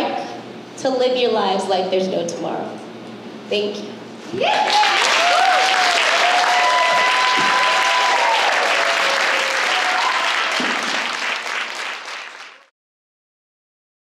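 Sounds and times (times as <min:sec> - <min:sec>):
voices whooping and cheering: 0:04.3 - 0:10.8
audience applauding: 0:04.5 - 0:12.7.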